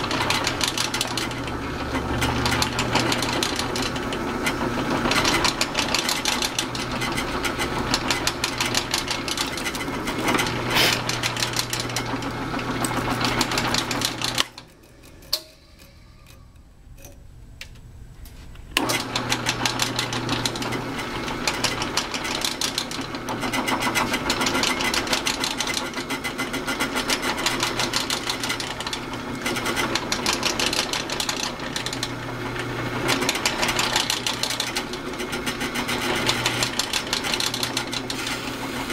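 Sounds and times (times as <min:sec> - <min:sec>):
drill press motor running: 0:00.0 - 0:17.2, 0:18.6 - 0:38.9.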